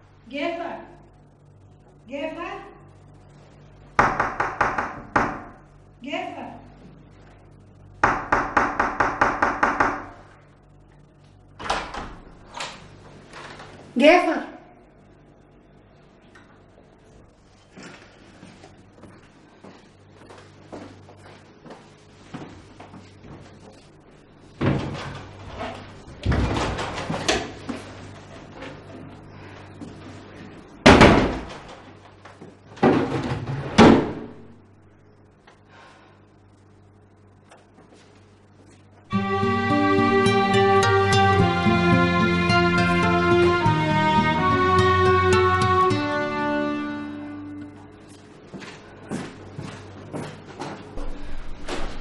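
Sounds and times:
knocking on a door: 4.0 - 5.6, 8.0 - 10.1
wooden wardrobe doors banging shut: 30.9 - 31.7, 32.8 - 34.4.

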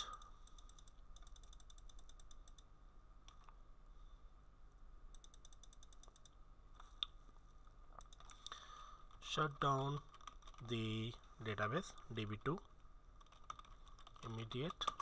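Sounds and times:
computer clicks: 0.0 - 2.7, 5.1 - 7.2, 8.0 - 9.2, 10.1 - 10.7
faint steady hum: 0.0 - 15.0.

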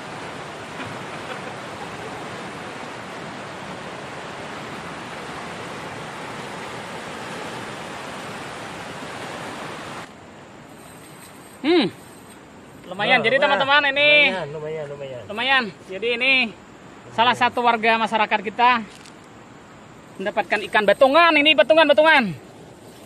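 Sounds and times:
river water rushing over rapids: 0.0 - 10.7.

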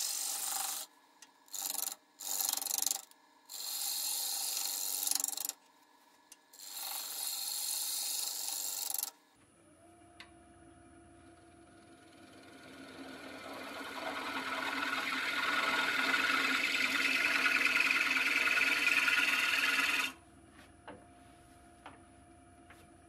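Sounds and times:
gouge cutting spinning wood: 0.0 - 0.9, 1.5 - 5.5, 6.6 - 9.1, 11.9 - 20.2
lathe motor humming: 11.9 - 20.2.

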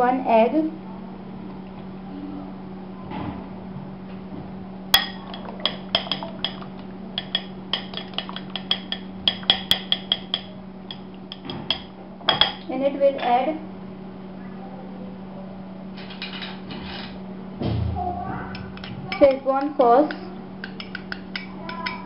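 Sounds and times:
low steady hum: 0.0 - 22.0
light clinks on glass bowl: 5.0 - 12.6.

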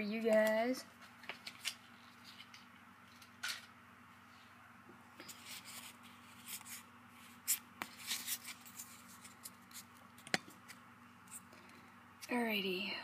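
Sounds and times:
cards rustling: 0.2 - 3.6, 5.2 - 11.8.

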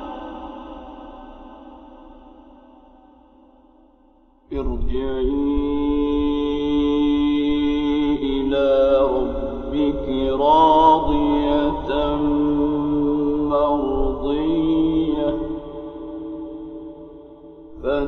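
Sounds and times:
man reciting melodically: 4.5 - 16.4, 17.7 - 18.0.

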